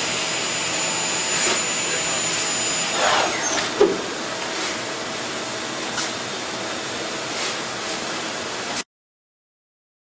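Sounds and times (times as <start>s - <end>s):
lathe running with rushing hiss: 0.0s - 4.9s.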